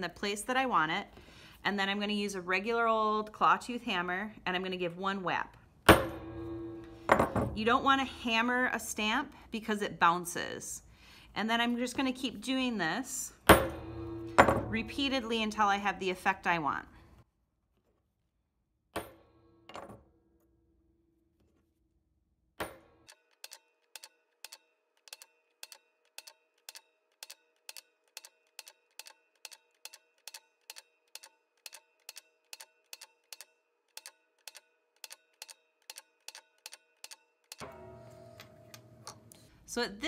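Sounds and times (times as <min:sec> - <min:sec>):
hammer striking metal stamp: 0:05.9 - 0:07.6, 0:13.5 - 0:14.8
background music with ticking: 0:23.4 - 0:37.9.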